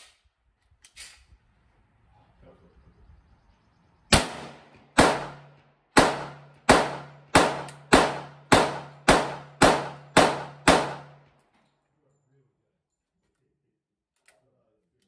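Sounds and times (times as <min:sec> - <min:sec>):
rapid gunshots ringing: 0:04.1 - 0:11.2.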